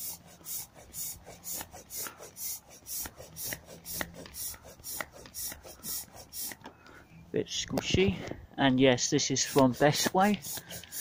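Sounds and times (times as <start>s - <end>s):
air pump rhythmic hiss: 0.0s - 6.7s, 9.2s - 11.0s.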